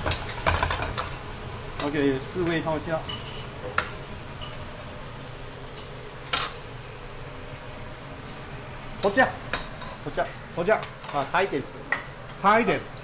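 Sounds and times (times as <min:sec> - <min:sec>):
food sizzling and bubbling in a pan: 0:00.0 - 0:13.0.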